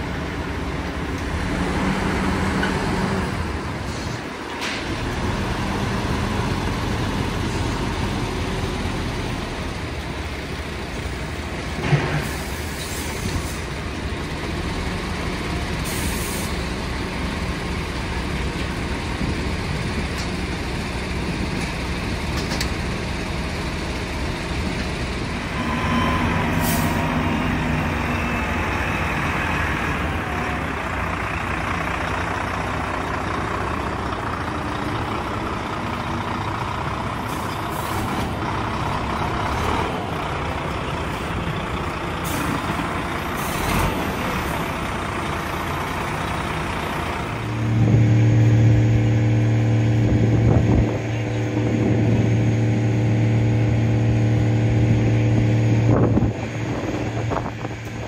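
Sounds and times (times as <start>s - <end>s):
air brake hisses: 12.1s - 13.7s, 15.8s - 16.6s, 26.5s - 27.1s
lorry engine running: 16.5s - 58.0s.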